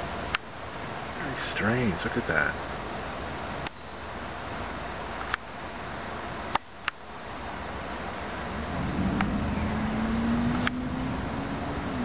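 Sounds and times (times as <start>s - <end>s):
steady hiss: 0.0s - 12.0s
car engine hum: 4.1s - 12.0s
sharp clicks: 10.5s - 10.8s.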